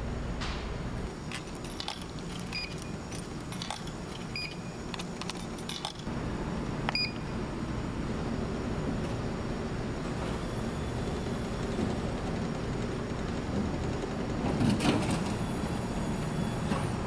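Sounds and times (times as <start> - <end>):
steady low hum: 0.0 - 17.0
small clicks and clinks: 1.3 - 6.1.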